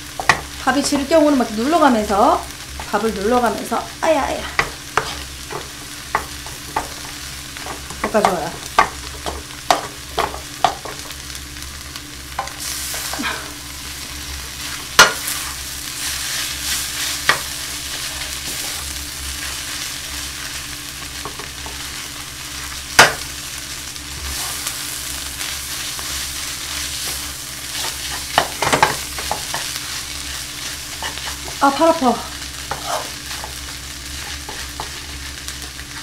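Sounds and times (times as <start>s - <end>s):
rice sizzling in a frying pan: 0.0s - 36.0s
spatula knocking against pan: 4.6s - 7.0s, 7.6s - 11.1s.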